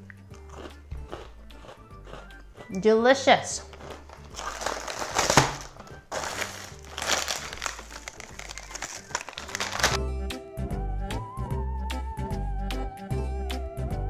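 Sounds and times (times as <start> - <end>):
background music: 0.0 - 14.0
plastic package crinkling: 3.6 - 10.0.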